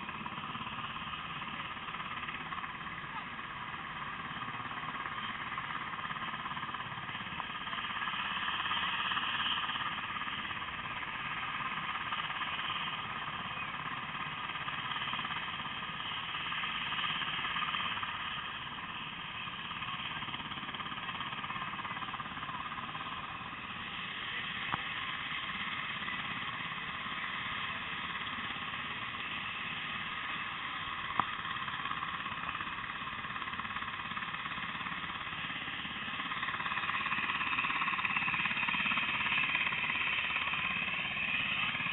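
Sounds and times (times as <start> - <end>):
mechanical drone: 20.1 - 41.9.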